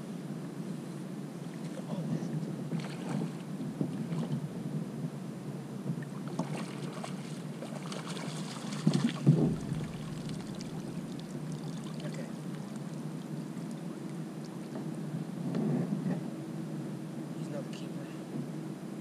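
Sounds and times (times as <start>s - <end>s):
water around hull: 0.0s - 19.0s
landing net splashing into water: 6.2s - 12.9s
knock on kayak: 8.9s - 10.7s.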